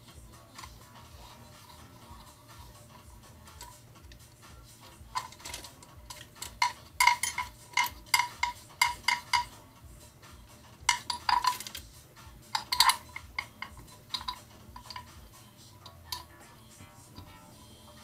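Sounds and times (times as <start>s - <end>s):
metal parts clinking: 5.0s - 9.6s, 10.8s - 11.9s, 12.5s - 15.2s.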